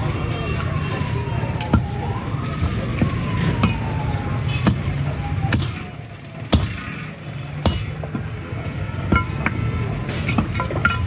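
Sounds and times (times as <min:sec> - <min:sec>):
cleaver chopping meat on wood: 0:05.5 - 0:05.9, 0:06.5 - 0:07.0, 0:07.6 - 0:08.3.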